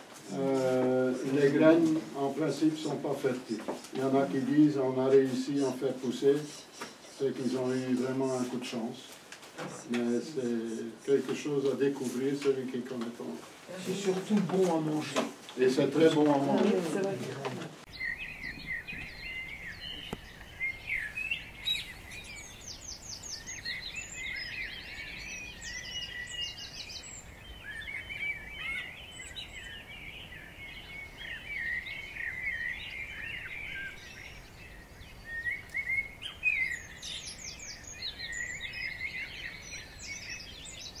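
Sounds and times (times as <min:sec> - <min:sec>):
birds chirping and warbling: 0:00.0 - 0:41.0
high bird trills: 0:05.4 - 0:08.8, 0:17.9 - 0:41.0.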